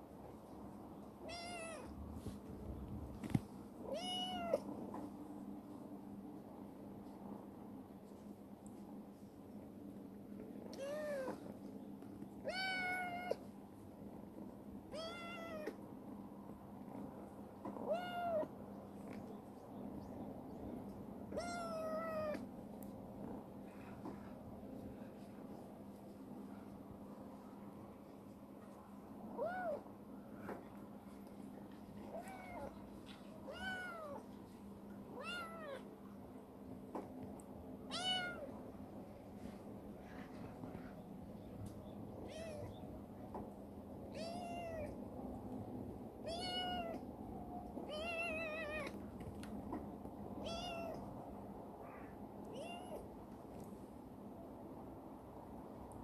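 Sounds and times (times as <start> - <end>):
cat meowing: 1.2 - 1.9, 3.8 - 4.6, 10.7 - 11.4, 12.4 - 13.4, 14.9 - 15.8, 17.8 - 18.5, 21.3 - 22.4, 33.5 - 34.2, 35.2 - 35.9, 37.9 - 38.5, 42.2 - 42.8, 44.1 - 44.9, 46.2 - 47.0, 47.9 - 49.0, 50.4 - 51.0, 51.9 - 53.0
kitten meowing: 3.9 - 4.6, 21.4 - 22.4, 50.4 - 51.0.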